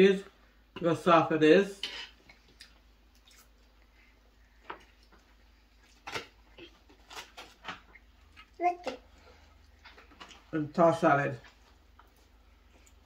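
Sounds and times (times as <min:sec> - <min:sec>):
soft eating clicks and smacks: 0:02.2 - 0:10.5, 0:11.4 - 0:13.0.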